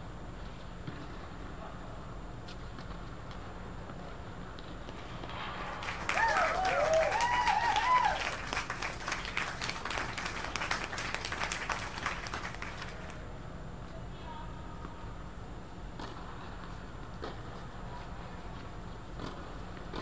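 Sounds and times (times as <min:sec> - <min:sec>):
spectators clapping: 0:05.6 - 0:13.2
excited voices cheering: 0:05.8 - 0:12.9.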